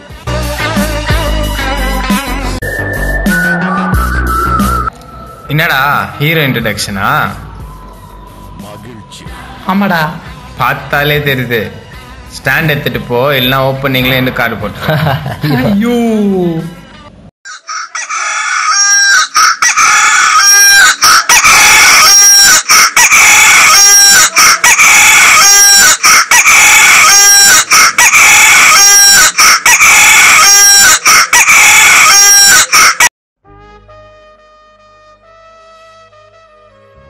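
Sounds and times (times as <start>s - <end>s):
rooster crow ringtone: 17.5s - 33.1s.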